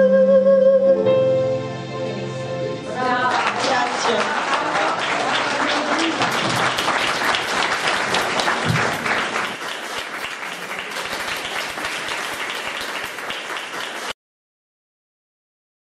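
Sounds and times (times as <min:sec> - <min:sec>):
audience applauding: 0:03.0 - 0:14.2.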